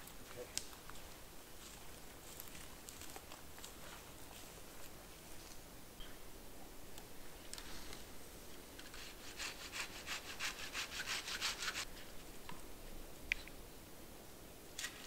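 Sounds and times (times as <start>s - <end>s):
hand saw cutting wood: 8.8s - 11.9s.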